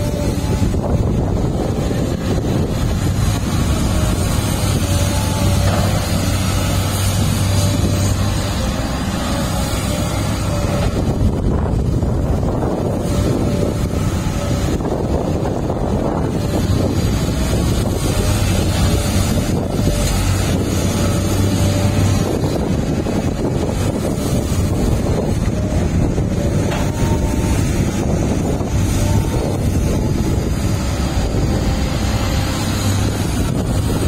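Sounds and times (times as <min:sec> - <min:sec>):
heavy machinery engine running: 0:00.0 - 0:34.0
wind buffeting microphone: 0:00.0 - 0:34.0.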